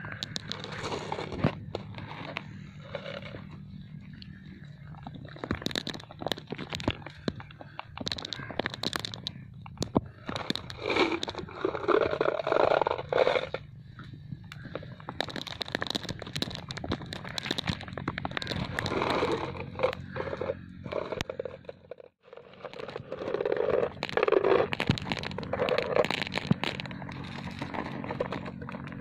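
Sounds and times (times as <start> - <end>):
marbles clicking together: 0.0 - 1.2, 5.3 - 13.1, 14.5 - 20.1, 22.6 - 28.7
marbles scraping and crunching: 0.0 - 13.7, 14.5 - 29.0.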